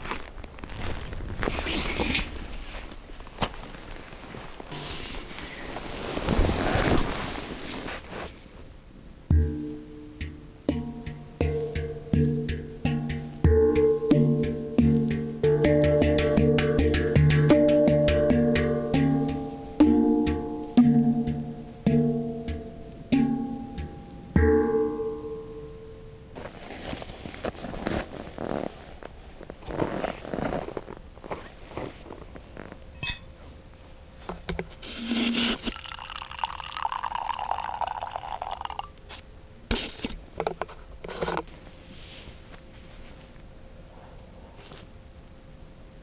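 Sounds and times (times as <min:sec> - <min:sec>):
handpan notes ringing: 0:09.3 - 0:26.4
water pouring: 0:35.0 - 0:38.9.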